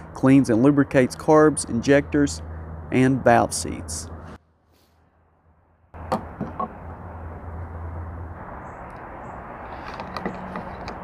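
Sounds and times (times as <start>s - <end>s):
bottle clicks and knocks: 6.0s - 6.8s.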